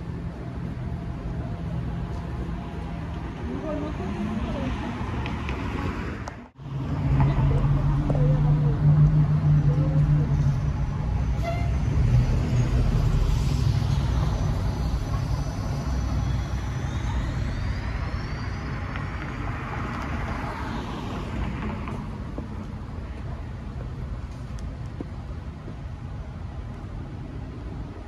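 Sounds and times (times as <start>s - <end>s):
bus engine rumble: 0.0s - 28.0s
road noise: 0.0s - 28.0s
high-pitched whine: 9.4s - 19.9s.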